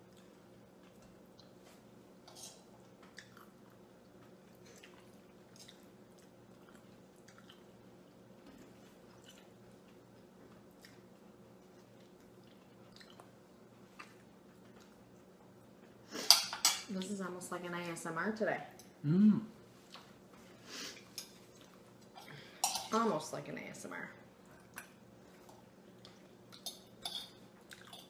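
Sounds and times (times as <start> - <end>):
quiet chewing: 0.0 - 16.1, 19.6 - 22.6, 24.4 - 28.0
forks clicking on plates: 26.6 - 28.0.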